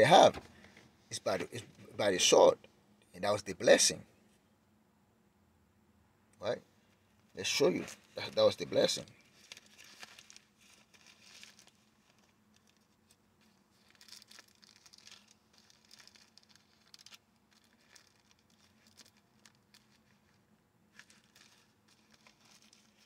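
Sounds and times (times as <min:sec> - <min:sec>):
book pages being leafed through: 0:07.4 - 0:23.0.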